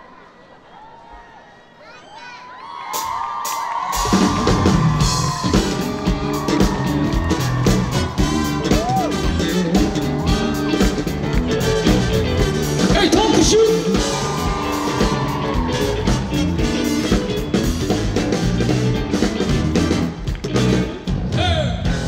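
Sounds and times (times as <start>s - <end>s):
drum beat: 3.0s - 22.0s
live rock band playing: 3.9s - 22.0s
sliding guitar notes: 5.5s - 21.0s.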